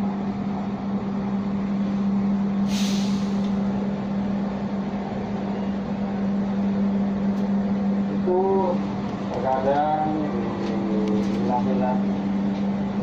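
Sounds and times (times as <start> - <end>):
constant hum: 0.0 - 13.0
train rumble: 0.0 - 13.0
short hiss: 2.7 - 3.6.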